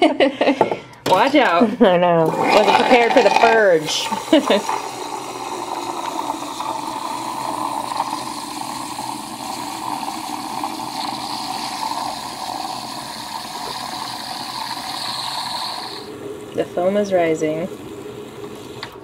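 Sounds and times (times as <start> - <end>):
steam wand hissing in milk: 2.5 - 16.1.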